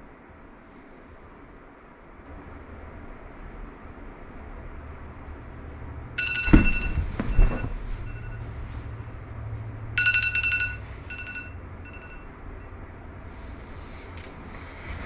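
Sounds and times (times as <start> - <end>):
steady low hum: 0.0 - 15.0
heavy thumps: 6.2 - 8.6.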